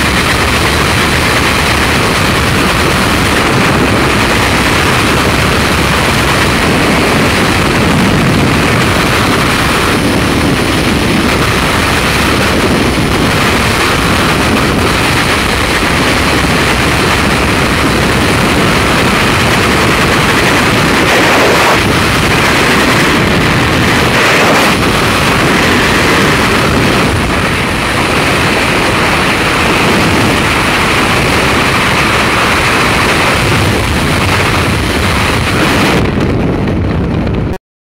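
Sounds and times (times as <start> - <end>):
wind rushing over microphone: 0.0 - 37.6.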